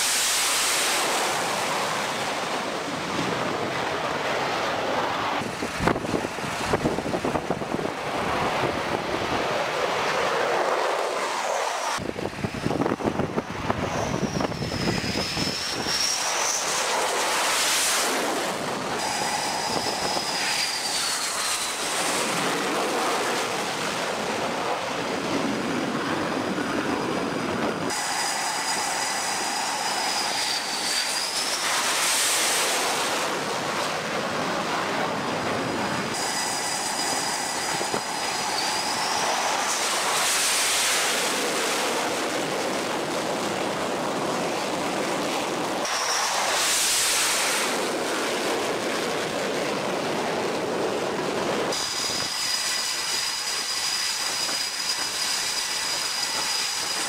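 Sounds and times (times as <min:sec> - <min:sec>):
jet engines roaring: 0:00.0 - 0:57.0.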